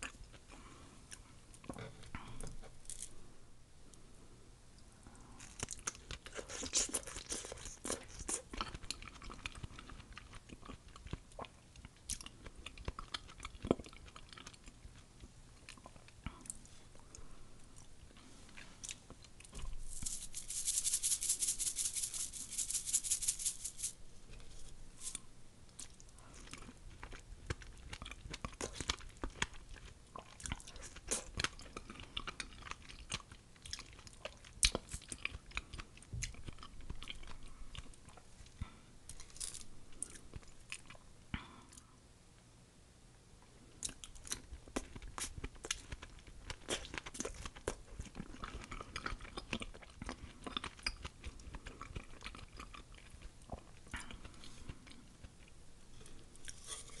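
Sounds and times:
person chewing mango: 5.3 - 19.8, 25.7 - 41.1, 43.8 - 57.0.

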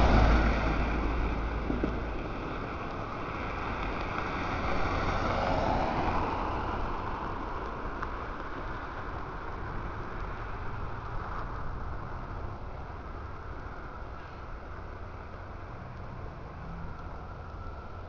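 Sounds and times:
car passing close by: 0.0 - 7.6
distant traffic noise: 0.0 - 18.0.

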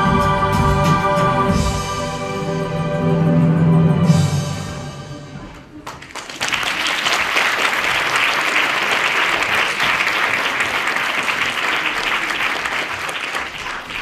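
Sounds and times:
audience applause: 5.8 - 14.0.

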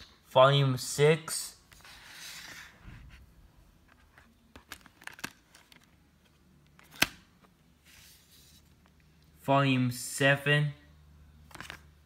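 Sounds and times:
plastic disc case clicks: 6.8 - 7.2.

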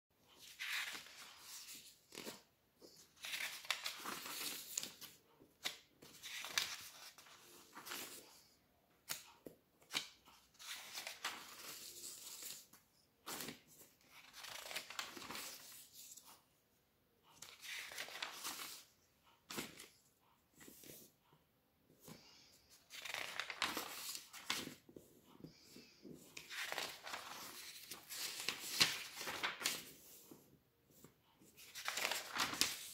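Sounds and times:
magazine pages turning: 0.3 - 16.2, 17.4 - 18.9, 22.1 - 30.2, 31.0 - 32.9.

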